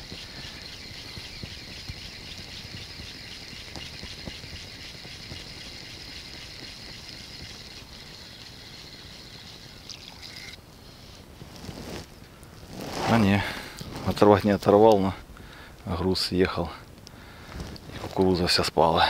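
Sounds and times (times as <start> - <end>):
fishing reel whirring: 0.0 - 10.6.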